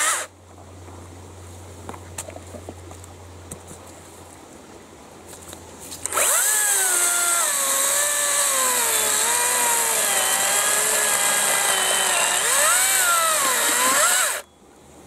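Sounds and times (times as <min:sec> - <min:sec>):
chainsaw cutting through log: 0:00.0 - 0:00.3, 0:06.1 - 0:14.4.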